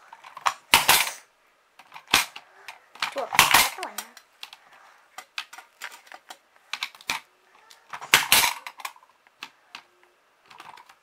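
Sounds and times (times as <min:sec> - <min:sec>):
plastic pawns clicking on board: 0:05.2 - 0:07.3, 0:08.0 - 0:11.0.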